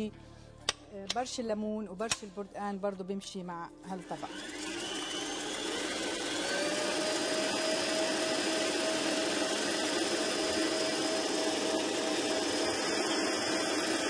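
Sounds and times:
stand mixer motor whine: 4.1 - 14.0.

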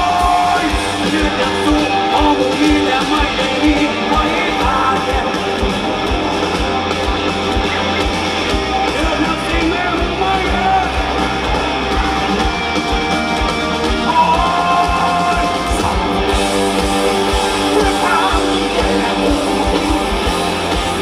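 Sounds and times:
rock band playing live: 0.0 - 21.0.

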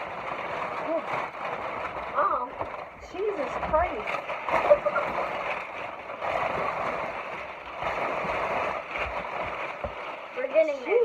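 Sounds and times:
packing paper rustling: 0.0 - 6.8.

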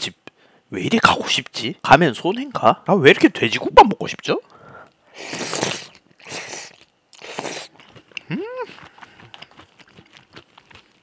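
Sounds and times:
person slurping broth: 5.1 - 9.4
soft chewing: 5.8 - 11.0
short vocal sound: 8.3 - 8.8.

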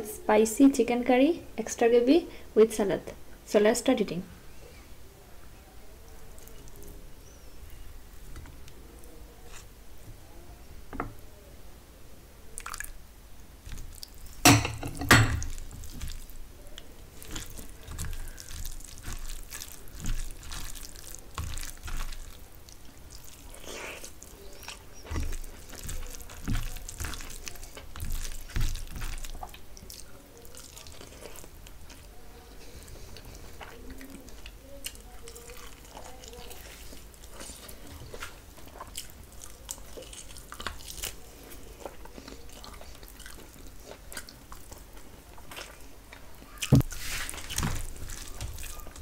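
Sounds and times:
fingers squishing rice: 15.4 - 49.0.

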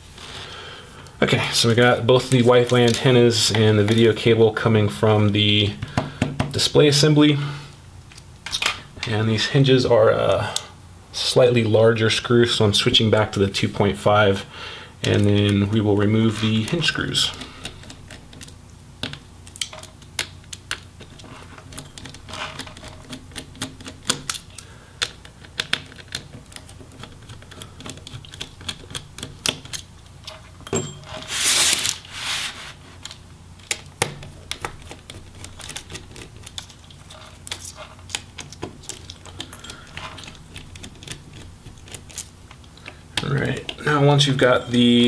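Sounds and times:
scraping rustle: 31.1 - 33.1.

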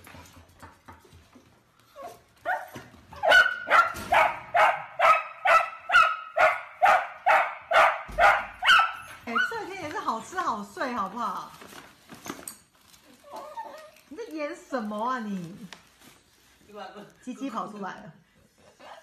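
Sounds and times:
dog barking: 2.5 - 9.5.

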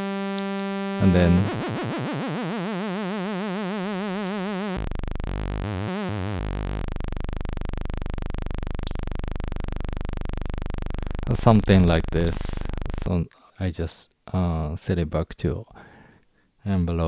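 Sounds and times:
synthesizer drone: 0.0 - 13.1.

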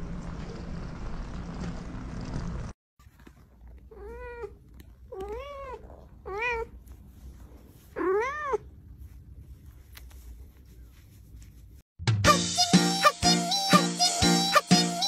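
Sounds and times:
cat meowing: 8.0 - 8.7.

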